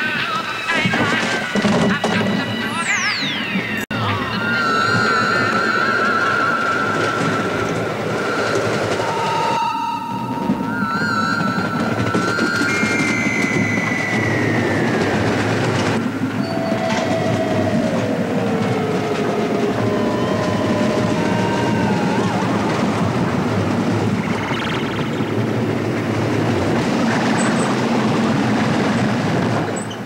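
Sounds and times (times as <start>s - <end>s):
long squealing tones: 0.0s - 27.6s
ride rumbling along a track: 0.0s - 30.0s.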